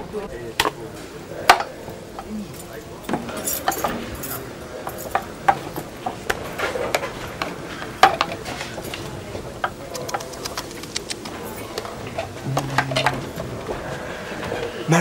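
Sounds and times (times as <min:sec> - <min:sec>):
people moving about: 0:00.0 - 0:15.0
clinking cups plates and cutlery: 0:01.4 - 0:09.8.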